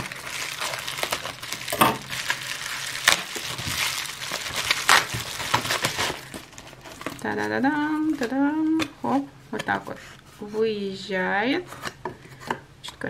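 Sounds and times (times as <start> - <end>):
scissors cutting bubble wrap: 0.0 - 7.3
plastic crackling rustle: 0.0 - 8.4.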